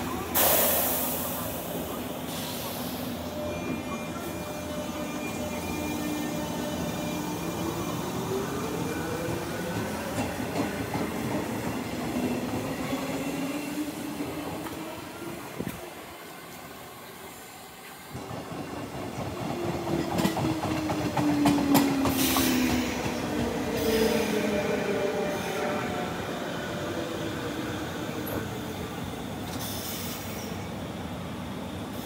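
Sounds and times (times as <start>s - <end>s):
train wheels clicking: 17.9s - 24.2s.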